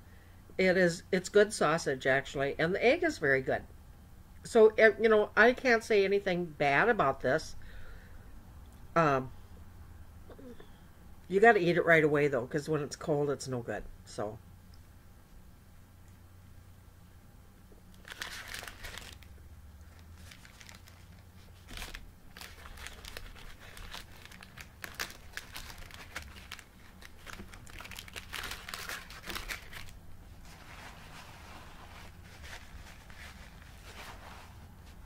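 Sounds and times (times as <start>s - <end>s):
paper crinkling and rustling: 18.0s - 35.0s.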